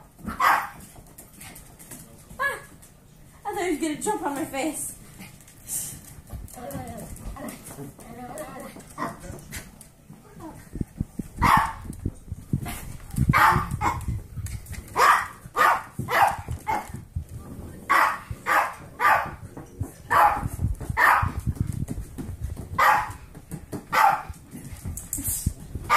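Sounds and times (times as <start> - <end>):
small dog barking: 0.3 - 0.8, 11.4 - 11.9, 13.3 - 14.1, 15.0 - 16.9, 17.9 - 19.4, 20.1 - 21.4, 22.8 - 23.2, 23.9 - 24.3
low thumping: 16.0 - 25.9.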